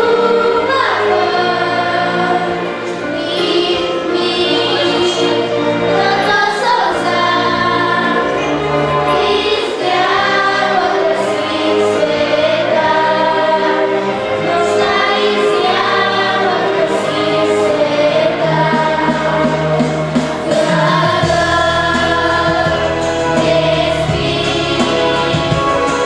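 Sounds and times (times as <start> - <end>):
girls' choir singing: 0.0 - 26.0
instrumental accompaniment low chords: 18.5 - 26.0.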